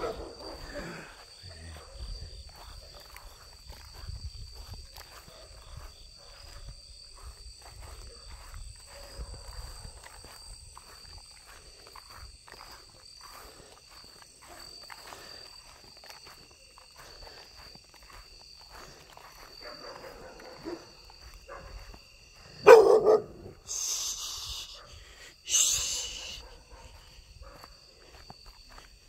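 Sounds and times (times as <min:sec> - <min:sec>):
dog barking: 0:00.0 - 0:00.7, 0:01.7 - 0:02.1, 0:05.2 - 0:06.6, 0:08.9 - 0:09.9, 0:19.6 - 0:21.9, 0:22.6 - 0:23.6, 0:25.8 - 0:27.8
night insects chirring: 0:00.0 - 0:29.0
short hissing bursts: 0:23.6 - 0:24.8, 0:25.4 - 0:26.4.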